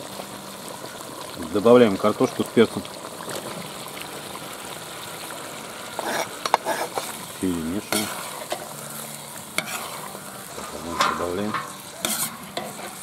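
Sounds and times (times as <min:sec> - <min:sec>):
stew simmering and sizzling: 0:00.0 - 0:13.0
metal spoon scraping pot: 0:06.0 - 0:07.1, 0:09.6 - 0:13.0.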